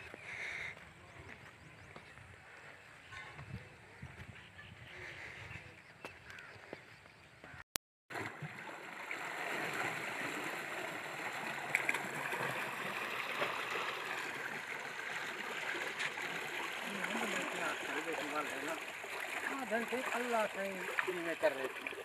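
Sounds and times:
water flowing and gurgling: 0:08.1 - 0:22.0.

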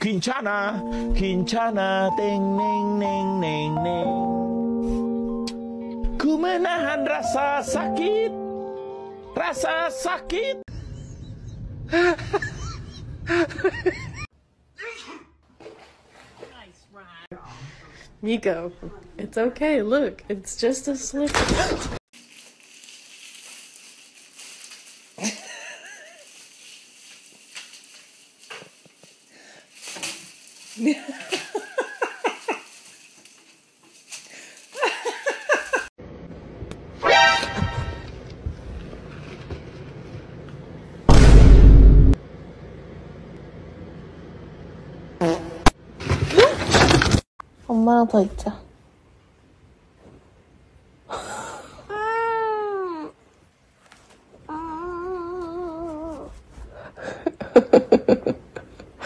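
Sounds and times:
person laughing: 0:11.9 - 0:14.3, 0:25.2 - 0:26.3, 0:30.8 - 0:32.7, 0:34.8 - 0:35.9, 0:57.0 - 0:59.0.

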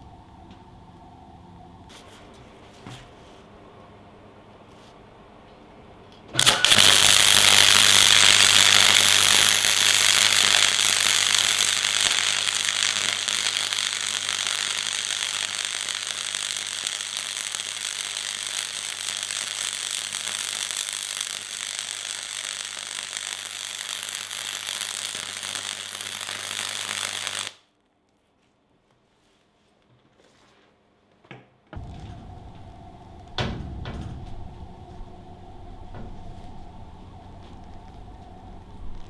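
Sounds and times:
steady low hum: 0:00.0 - 0:06.3, 0:31.8 - 0:39.0
welder arc crackling: 0:06.3 - 0:27.6, 0:31.8 - 0:39.0.

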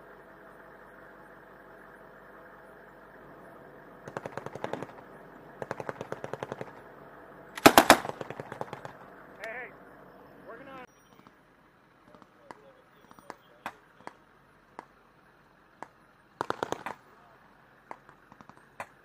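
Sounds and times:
automatic weapons fire: 0:04.0 - 0:06.9, 0:07.6 - 0:09.1, 0:16.4 - 0:17.0.

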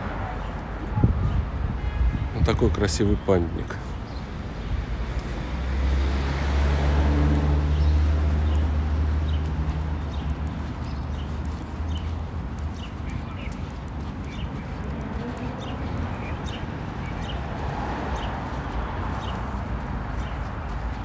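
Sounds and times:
footsteps on pavement: 0:00.0 - 0:21.0
traffic hum: 0:00.0 - 0:21.0
small birds chirping: 0:03.8 - 0:04.5, 0:07.7 - 0:21.0.

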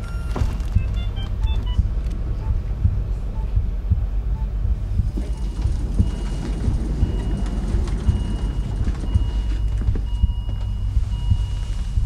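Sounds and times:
patient monitor long beeps: 0:00.0 - 0:02.6, 0:05.2 - 0:12.0
pulsing low rumble: 0:00.0 - 0:12.0.

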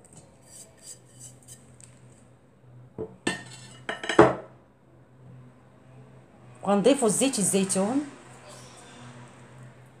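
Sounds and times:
dishes and utensils clinking: 0:03.3 - 0:04.5.

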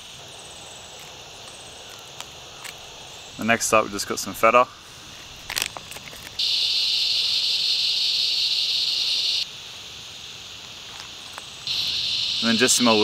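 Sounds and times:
high insect buzz: 0:00.0 - 0:13.0
plastic packet crinkling: 0:05.4 - 0:06.4.

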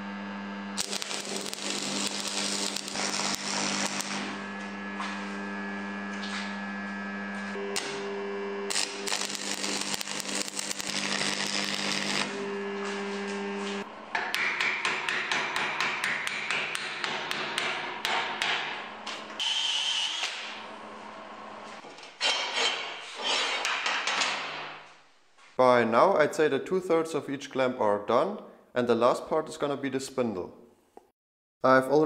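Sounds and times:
welding arc crackling: 0:00.6 - 0:05.2, 0:07.5 - 0:13.9
hammer striking metal: 0:14.1 - 0:18.8.

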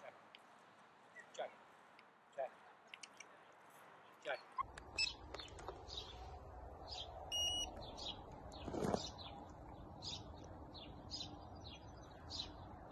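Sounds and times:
small birds chirping: 0:00.0 - 0:12.9
microchip scanner beep: 0:07.3 - 0:07.7.

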